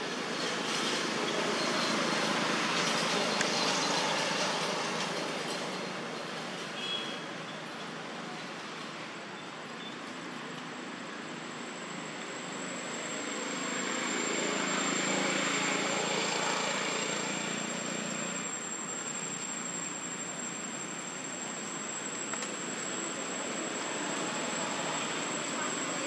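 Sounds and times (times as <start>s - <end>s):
outdoor background noise: 0.0s - 26.0s
thin high whine: 11.9s - 26.0s.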